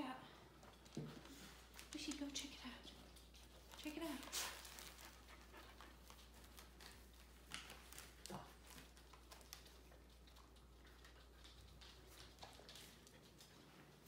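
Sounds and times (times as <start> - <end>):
faint ticks and soft rustles: 0.2 - 14.0.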